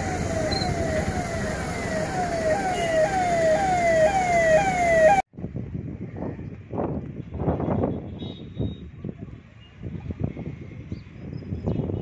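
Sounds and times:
siren wailing: 0.0s - 5.3s.

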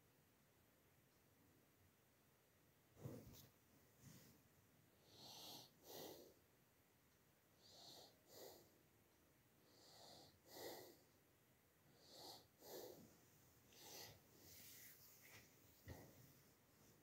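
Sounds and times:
faint breathing: 4.0s - 6.4s, 7.6s - 8.8s, 9.6s - 11.2s, 11.9s - 17.0s.

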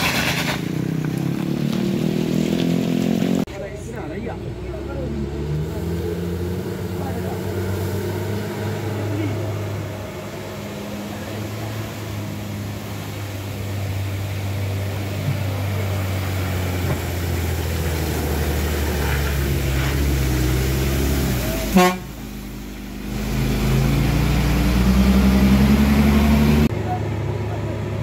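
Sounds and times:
diesel bus engine under load: 0.0s - 28.0s
bus horn blast: 21.6s - 22.2s.

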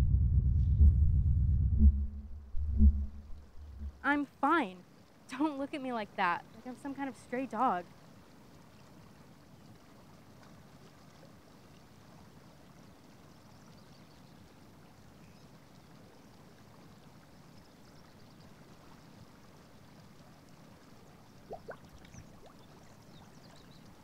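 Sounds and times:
river flowing: 2.5s - 10.9s.

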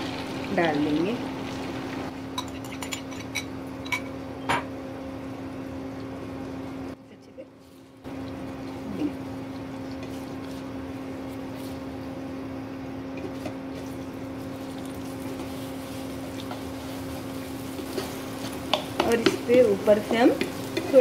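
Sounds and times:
eggs sizzling in oil: 0.0s - 3.8s, 7.8s - 21.0s
spatula scraping a pan: 17.6s - 21.0s.

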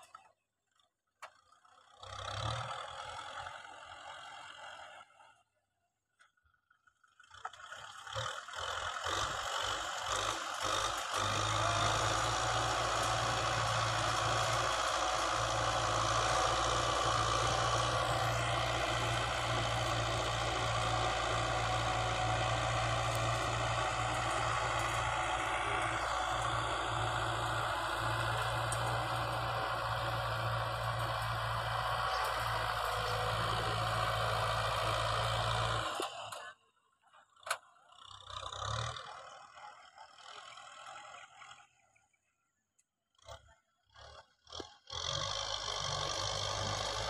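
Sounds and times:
tractor diesel engine under load: 0.0s - 5.6s, 6.3s - 41.8s, 43.2s - 47.0s.

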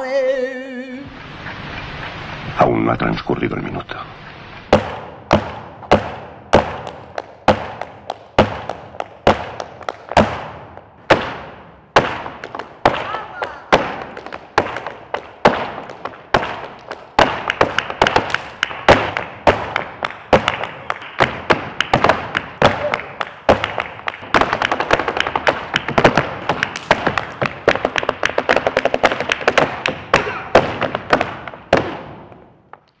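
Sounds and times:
shoes stamping on wooden floor: 4.7s - 10.5s, 12.0s - 32.4s.

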